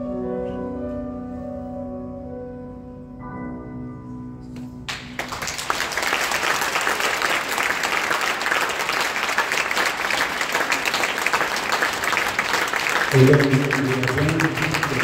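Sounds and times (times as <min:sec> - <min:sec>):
audience applause: 0:04.9 - 0:15.0.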